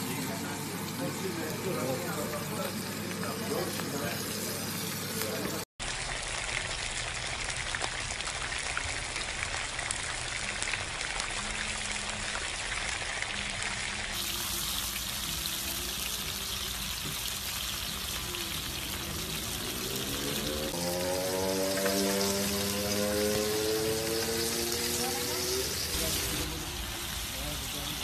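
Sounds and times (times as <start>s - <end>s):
steak sizzling in butter: 12.8s - 28.0s.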